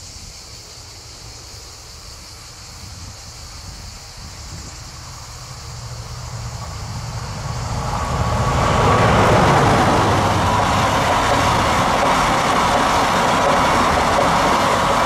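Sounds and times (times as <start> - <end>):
train wagons rolling past: 2.2 - 15.0
locomotive low rumble: 4.1 - 15.0.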